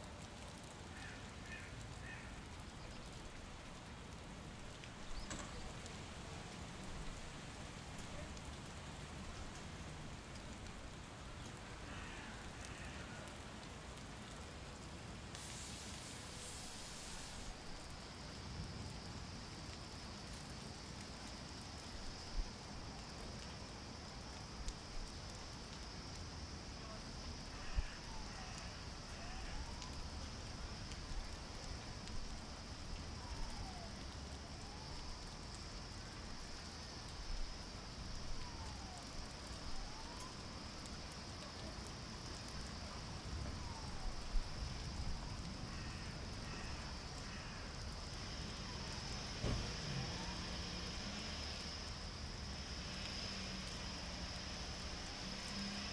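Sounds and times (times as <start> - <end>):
constant high hiss: 0.0 - 55.9
distant siren wailing: 26.9 - 55.9.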